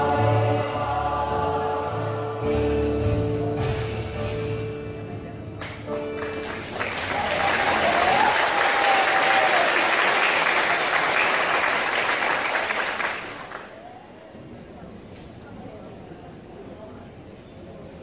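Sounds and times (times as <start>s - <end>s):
choir holding a chord: 0.0s - 3.0s
audience applause: 6.1s - 13.8s.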